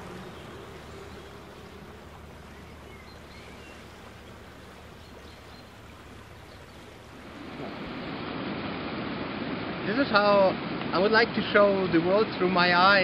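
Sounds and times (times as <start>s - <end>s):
wind rushing: 7.2s - 10.9s.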